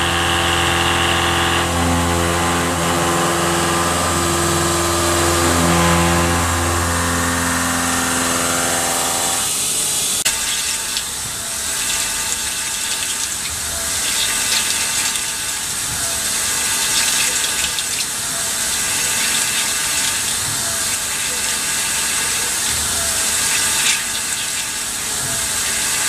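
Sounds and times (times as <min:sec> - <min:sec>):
milling machine cutting tone: 0:00.0 - 0:26.0
coolant hissing and splashing: 0:09.5 - 0:26.0.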